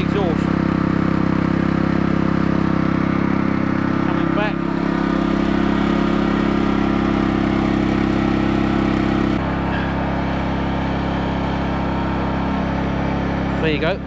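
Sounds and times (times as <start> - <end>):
petrol generator running: 0.0 - 14.0.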